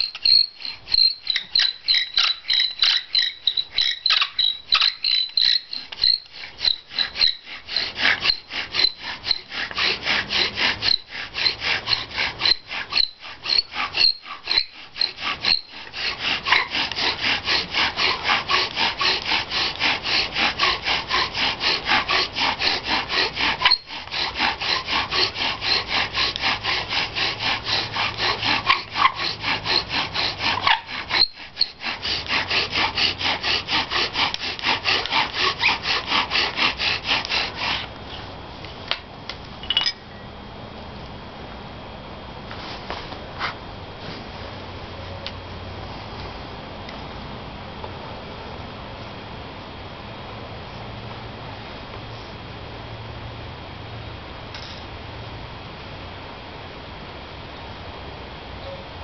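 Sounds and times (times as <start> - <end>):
bow drill grinding squeak: 0.0 - 17.0, 22.6 - 25.9, 27.7 - 31.8, 39.6 - 40.2.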